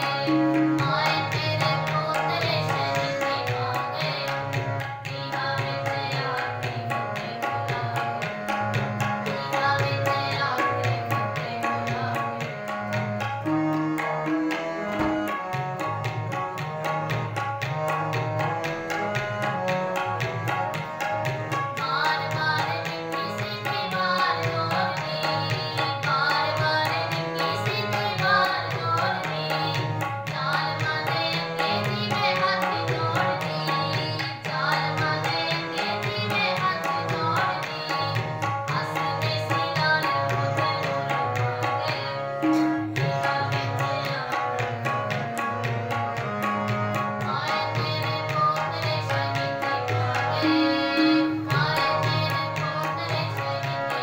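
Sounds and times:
harmonium melody: 0.0 - 54.0
tabla rhythm: 0.0 - 54.0
person singing: 9.2 - 12.4, 47.2 - 54.0.

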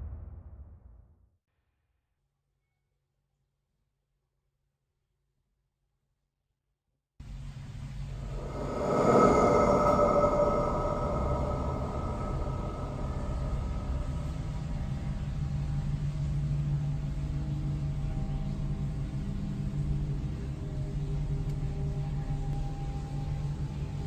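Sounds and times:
low droning music: 7.4 - 24.0.

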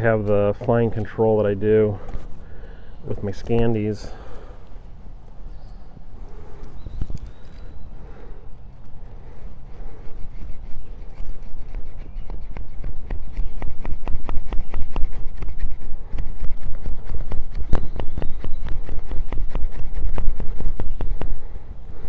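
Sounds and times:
knife scraping wood: 8.8 - 21.4.

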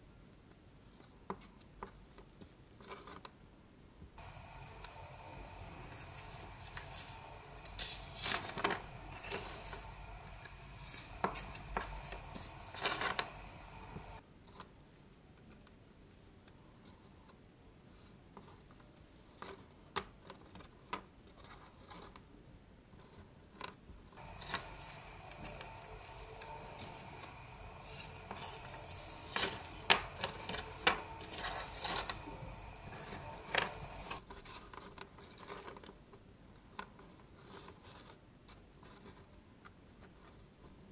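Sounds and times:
wire pulled through cardboard: 24.2 - 36.0.

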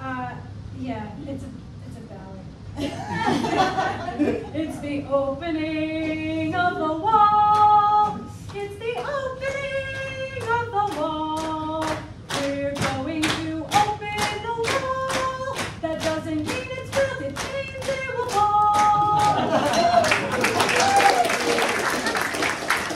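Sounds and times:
woman singing unaccompanied: 4.5 - 19.5
steady clapping: 8.5 - 22.9
applause: 17.8 - 22.9.

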